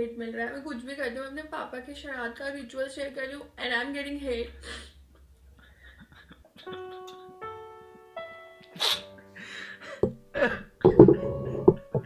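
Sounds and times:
slow piano notes: 6.5 - 12.0.

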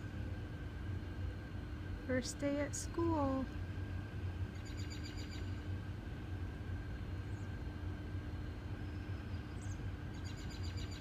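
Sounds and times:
steady low hum: 0.0 - 11.0
faint bird chirps: 4.5 - 5.6, 8.8 - 11.0
bird trilling: 4.6 - 5.6.

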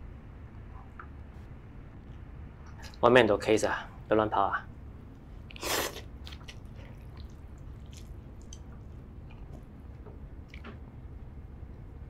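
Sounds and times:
man slurping noodles: 5.6 - 7.2.

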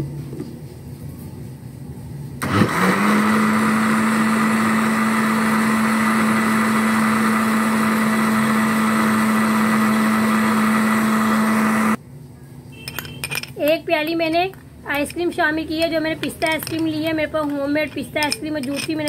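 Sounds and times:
blender motor whining: 2.4 - 12.0.

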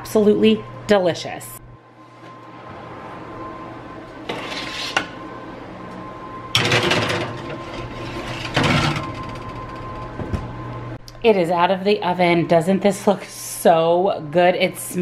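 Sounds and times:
metal pan scraping on oven rack: 4.2 - 5.2, 6.6 - 10.1.

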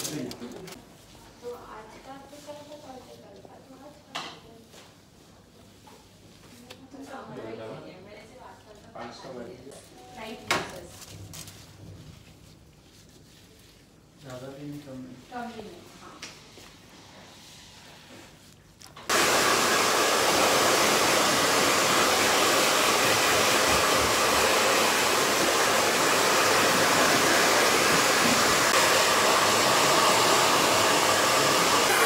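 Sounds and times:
hair dryer blowing: 19.1 - 32.0.

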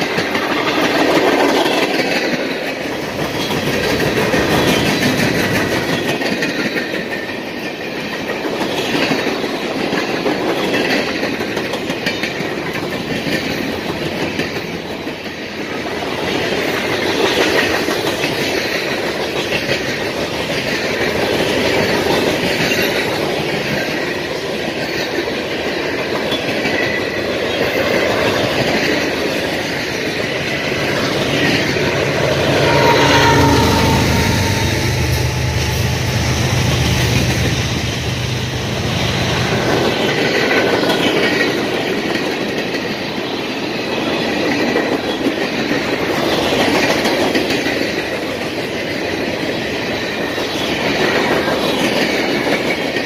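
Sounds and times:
clickety-clack over rail joints: 0.0 - 33.3, 38.6 - 53.0
freight train wheels rumbling: 0.0 - 53.0
high wheel squeals: 31.0 - 37.0.

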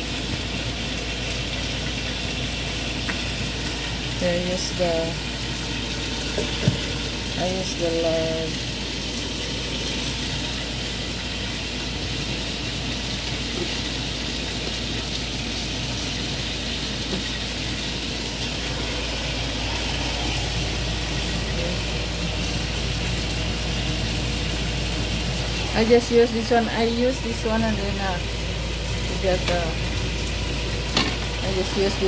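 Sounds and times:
chicken frying sizzle: 0.0 - 32.0
low rumble: 18.4 - 23.2.

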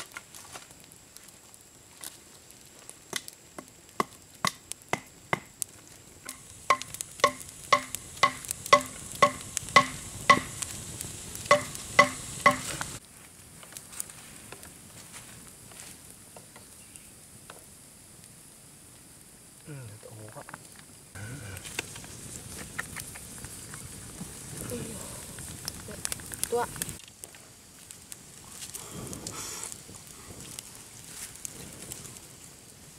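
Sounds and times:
blade chopping wooden stick: 6.3 - 10.6, 11.5 - 12.9.

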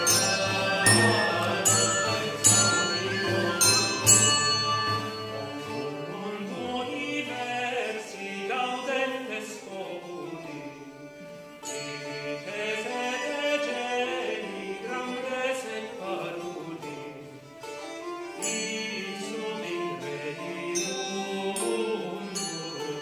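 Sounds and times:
sharp drum or bell strokes: 0.0 - 5.9
pipe and tabor drum: 0.0 - 6.8
plucked lutes: 0.0 - 7.0
person singing: 0.0 - 11.0, 11.8 - 17.4, 18.3 - 23.0
bowed vielle: 0.0 - 23.0.

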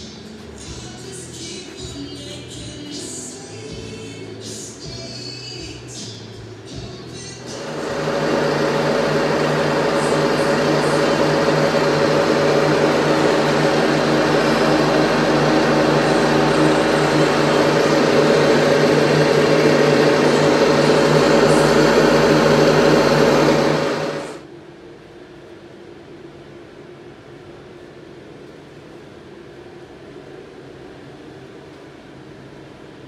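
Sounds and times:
electric motors whirring: 7.5 - 24.4.

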